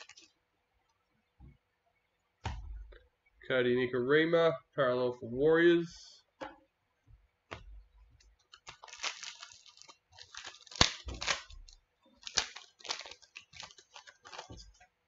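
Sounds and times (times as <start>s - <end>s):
cards rustling and sliding: 0.0s - 0.3s, 12.2s - 14.8s.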